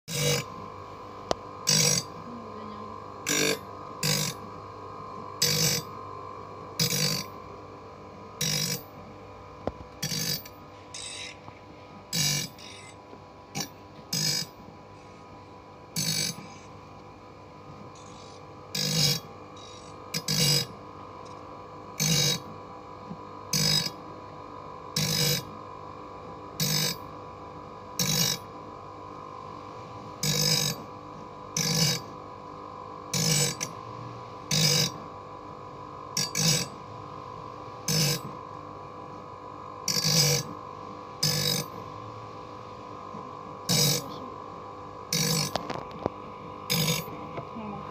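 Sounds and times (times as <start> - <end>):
machine motor hum: 0.1 - 28.4.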